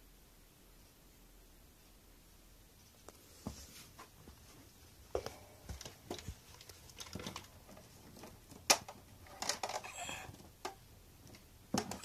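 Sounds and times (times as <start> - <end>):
hard objects clicking and knocking: 5.7 - 12.0.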